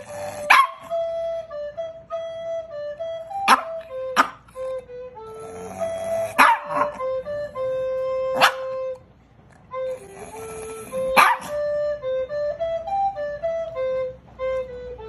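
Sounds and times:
melody of held notes: 0:00.0 - 0:15.0
small dog barking: 0:00.4 - 0:00.9, 0:03.5 - 0:04.4, 0:06.2 - 0:07.0, 0:08.4 - 0:08.8, 0:11.1 - 0:11.6.

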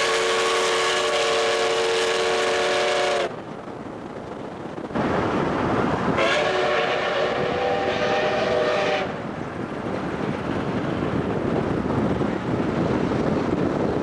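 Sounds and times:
steam locomotive whistle: 0:00.0 - 0:03.3, 0:06.2 - 0:09.2
wind and road noise: 0:00.0 - 0:14.0.

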